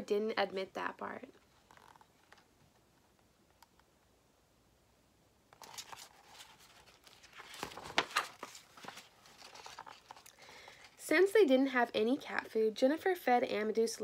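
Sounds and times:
book page turning: 1.3 - 2.5, 5.6 - 11.0.

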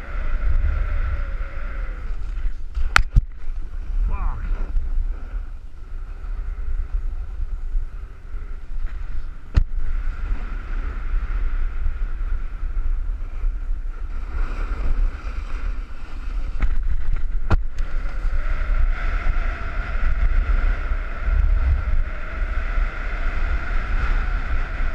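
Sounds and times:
wind buffeting microphone: 0.0 - 24.9
snowboard scraping packed snow: 8.6 - 21.9.

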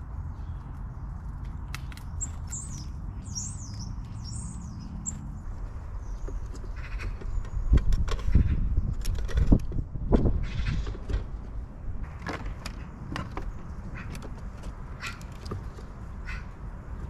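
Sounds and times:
small bird chirping: 0.0 - 8.4.

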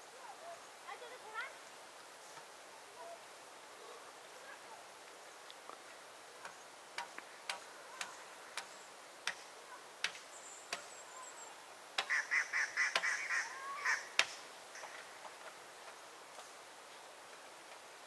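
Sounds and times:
chattering bird calls: 6.4 - 16.1.

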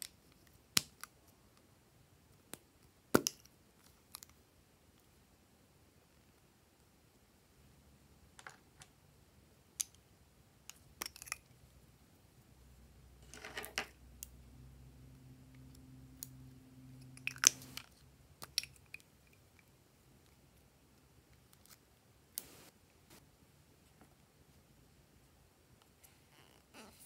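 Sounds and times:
plastic tubes and caps clicking: 10.7 - 11.5, 17.0 - 19.7.

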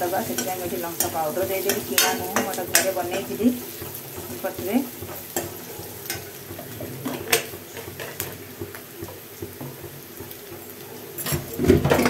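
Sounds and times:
onions sizzling in oil: 0.0 - 12.0
metal spoon clinking on pan: 0.1 - 3.4, 5.2 - 6.4, 10.7 - 12.0.

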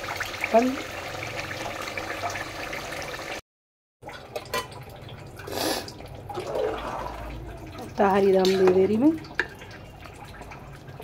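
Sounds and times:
meat sizzling in a pot: 0.0 - 3.4
water bubbling in a pot: 0.0 - 3.4, 4.0 - 11.0.

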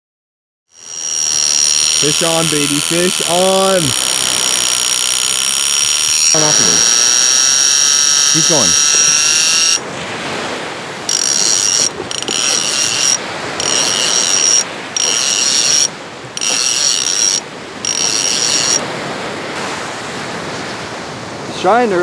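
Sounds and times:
fishing reel drag screaming: 0.7 - 9.8, 11.1 - 18.9
surf washing: 0.8 - 22.0.

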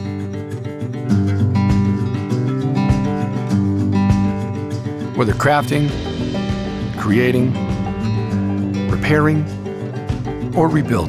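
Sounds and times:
strummed acoustic guitar music: 0.0 - 11.0
deep low beat: 5.7 - 10.6.

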